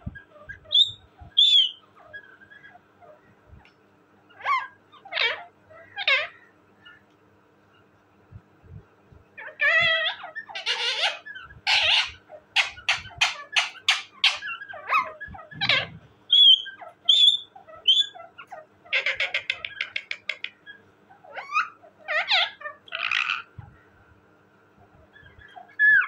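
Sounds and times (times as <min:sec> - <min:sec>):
parakeet squawking and chattering: 0:00.0 - 0:03.3, 0:04.3 - 0:07.0, 0:09.4 - 0:23.6, 0:25.1 - 0:26.0
parakeet whistles: 0:00.6 - 0:01.8, 0:10.6 - 0:18.2.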